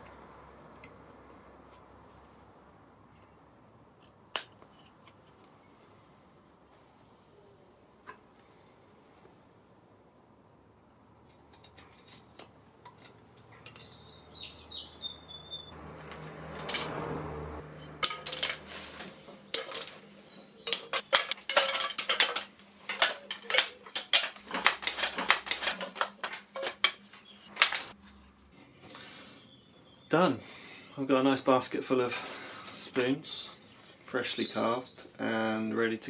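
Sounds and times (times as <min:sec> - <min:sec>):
wooden spoons clattering in basket: 0:17.9 - 0:28.0.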